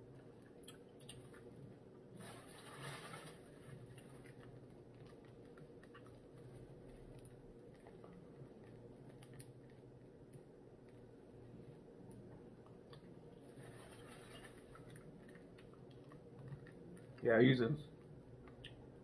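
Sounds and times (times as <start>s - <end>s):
low room hum: 0.0s - 19.0s
packaging rustle: 2.2s - 4.5s, 13.4s - 15.4s.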